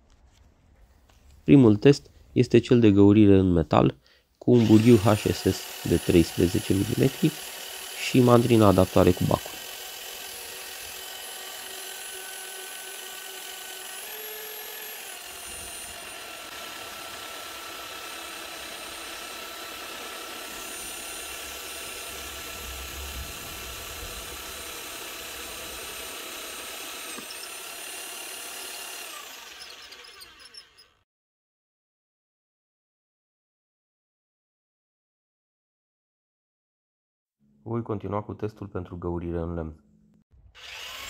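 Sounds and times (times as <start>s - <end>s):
rotary hammer drilling steel: 4.5s - 31.0s, 40.6s - 41.0s.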